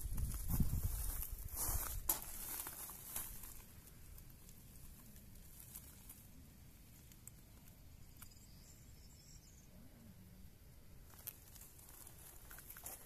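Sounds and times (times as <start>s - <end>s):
faint high chirping: 7.6s - 10.5s.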